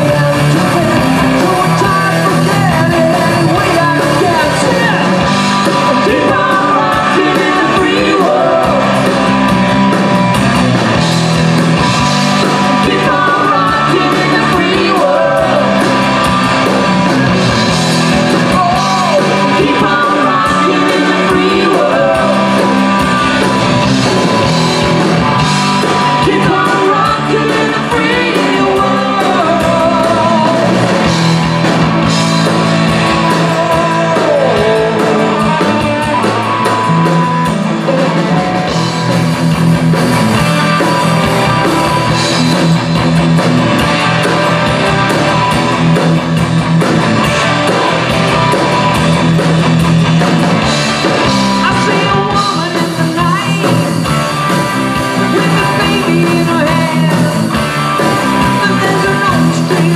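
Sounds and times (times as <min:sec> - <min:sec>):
man singing into a microphone: 0:00.0 - 0:05.2, 0:05.8 - 0:09.0, 0:12.7 - 0:15.9, 0:18.5 - 0:22.7, 0:26.1 - 0:30.9, 0:33.2 - 0:36.8, 0:51.6 - 0:53.8, 0:55.3 - 0:57.5, 0:58.5 - 0:59.9
drum kit: 0:00.0 - 0:59.9
electric guitars: 0:00.0 - 0:59.9.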